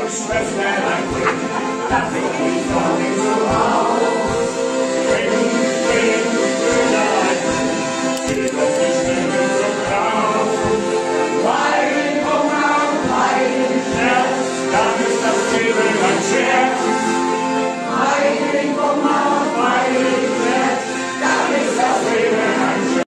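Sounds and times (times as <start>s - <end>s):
person singing: 0.0s - 23.0s
piano accordion playing: 0.0s - 23.0s.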